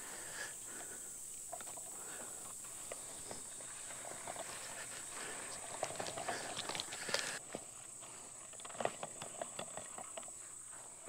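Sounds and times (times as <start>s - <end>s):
fence gear clicks and rattles: 1.5s - 7.6s, 8.4s - 10.7s.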